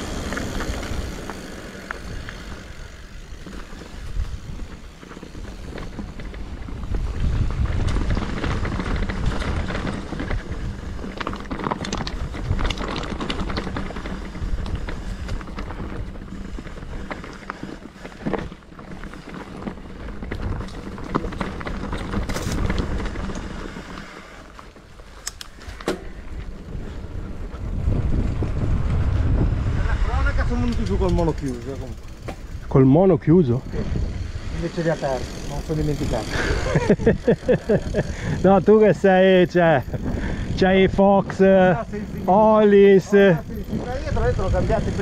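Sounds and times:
wind buffeting microphone: 0:00.0 - 0:17.2, 0:26.0 - 0:45.0
bike clicks and rattles: 0:00.0 - 0:45.0
low rumble: 0:26.1 - 0:31.4.

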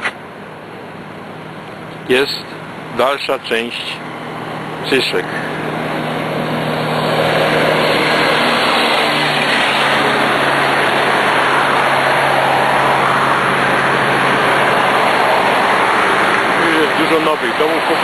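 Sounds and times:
road traffic passing: 0:00.0 - 0:18.0
car engine passing by: 0:03.8 - 0:18.0.

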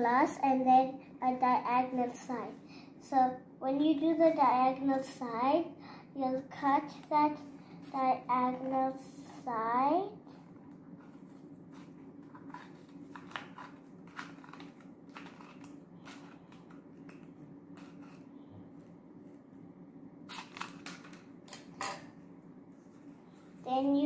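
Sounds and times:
scissors cutting paper tube: 0:11.8 - 0:18.3.

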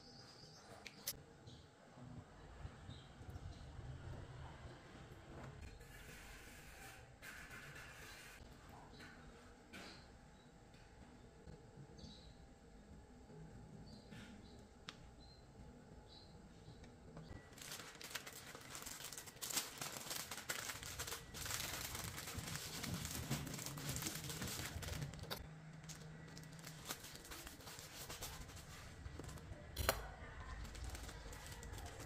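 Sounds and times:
paper wrap crinkling: 0:17.3 - 0:32.0.

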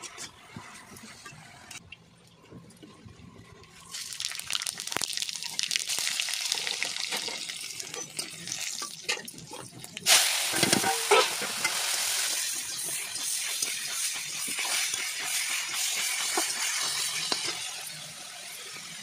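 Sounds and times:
greens sizzling in hot oil: 0:03.9 - 0:19.0
metal spatula scraping a pan: 0:10.5 - 0:18.6.

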